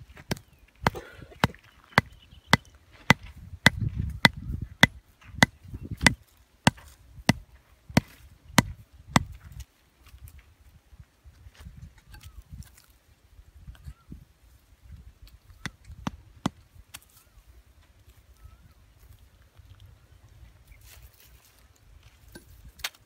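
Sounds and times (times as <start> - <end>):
hatchet pounding wooden stake: 0.2 - 7.4, 8.0 - 9.4.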